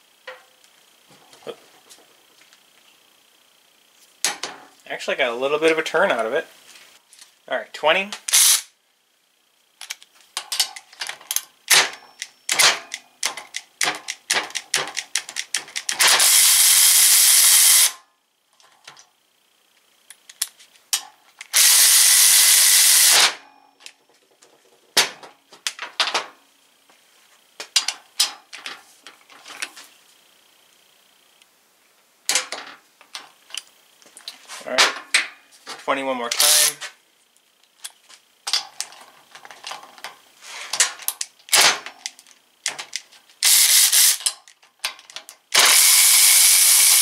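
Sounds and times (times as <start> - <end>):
quick ratchet clicks: 8.2 - 8.7, 11.3 - 18.0, 36.4 - 36.8, 41.1 - 44.6, 45.5 - 47.0
cordless ratchet wrench running: 8.3 - 8.7, 13.2 - 18.0, 21.4 - 23.4, 36.4 - 36.8, 43.4 - 44.3, 45.5 - 47.0.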